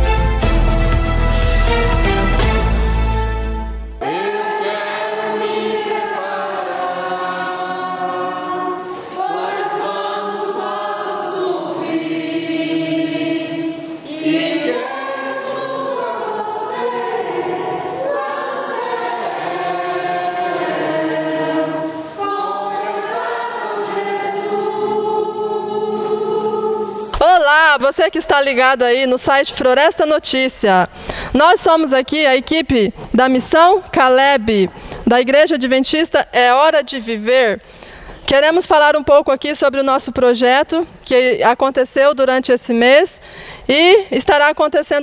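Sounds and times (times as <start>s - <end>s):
voices singing in chorus: 4.0s - 27.2s.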